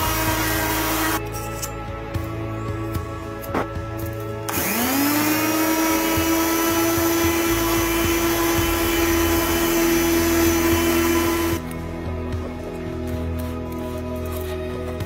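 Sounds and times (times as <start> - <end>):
power sander whining: 0.0 - 1.2, 4.5 - 11.7.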